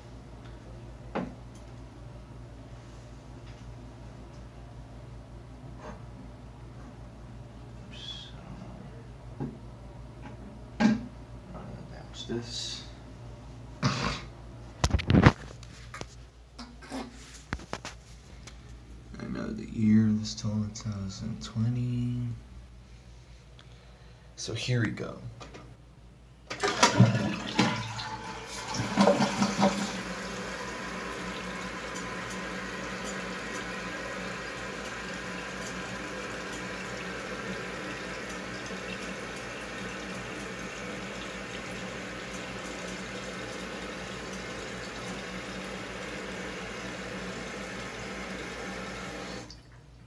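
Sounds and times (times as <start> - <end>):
toilet flushing: 26.5 - 49.7
toilet tank refilling: 26.5 - 49.8.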